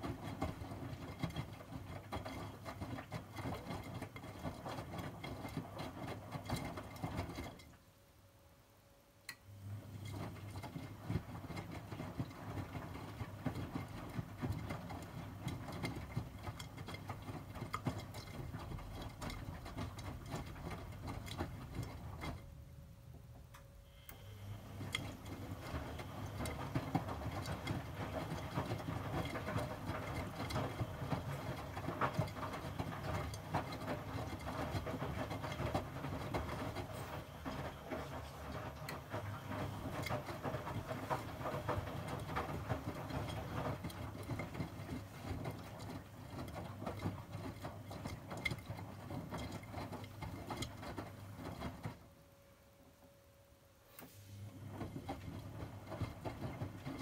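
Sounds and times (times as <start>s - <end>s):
washing machine drum tumbling laundry: 0.0s - 7.9s, 9.5s - 52.2s, 54.0s - 57.0s
faint hum: 22.4s - 26.7s.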